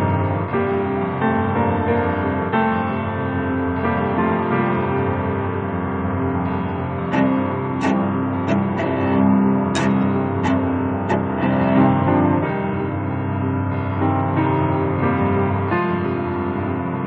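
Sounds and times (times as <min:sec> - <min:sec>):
piano playing: 0:06.5 - 0:12.8
cello playing slow classical: 0:07.1 - 0:11.2.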